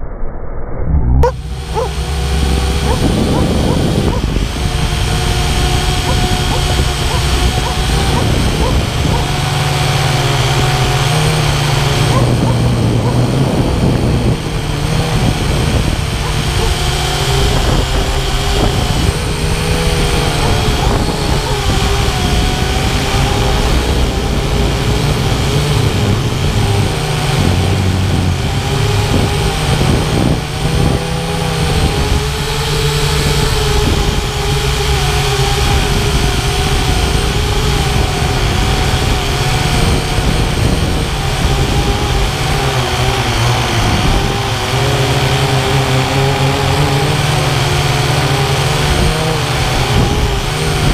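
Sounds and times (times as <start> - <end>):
low rumble: 0.0 - 26.5
drone propellers whirring: 0.0 - 50.9.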